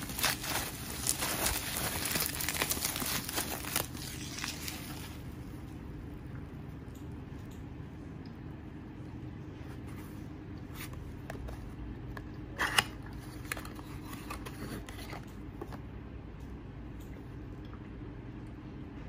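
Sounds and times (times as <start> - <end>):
cardboard carton rustling: 0.0 - 5.2
carton flap crackle: 0.0 - 5.4
steady low hum: 0.0 - 19.0.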